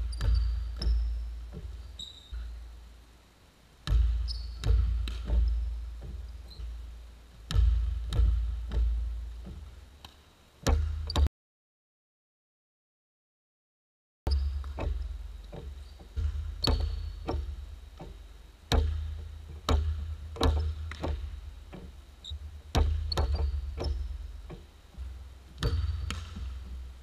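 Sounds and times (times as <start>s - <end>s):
basketball bouncing on hardwood floor: 0.0s - 2.5s, 3.8s - 6.8s, 7.5s - 9.7s, 10.7s - 11.3s, 14.3s - 24.7s, 25.5s - 26.8s.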